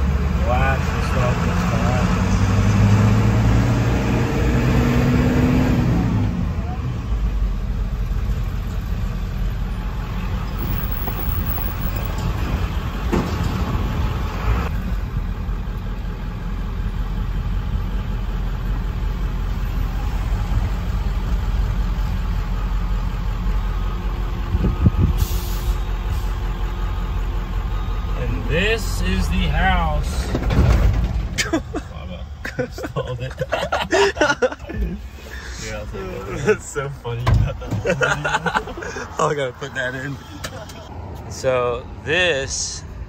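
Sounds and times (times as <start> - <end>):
truck engine and road rumble: 0.0 - 43.0
brief air hiss: 25.2 - 26.3.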